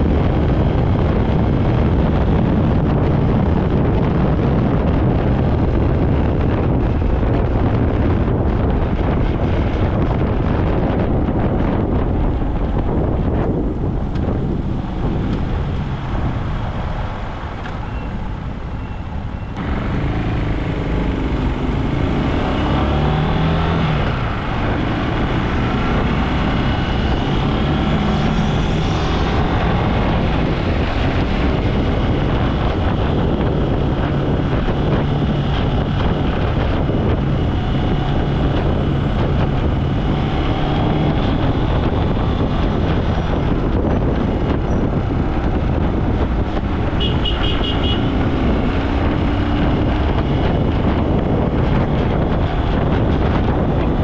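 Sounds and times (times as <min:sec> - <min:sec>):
road noise rushing: 0:00.0 - 0:54.0
motorbike engine: 0:19.6 - 0:54.0.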